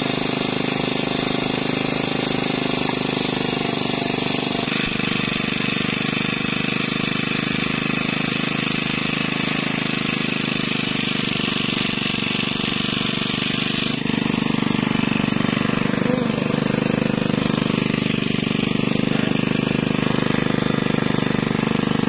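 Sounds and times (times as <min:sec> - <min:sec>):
boat engine chattering: 0:12.9 - 0:21.7.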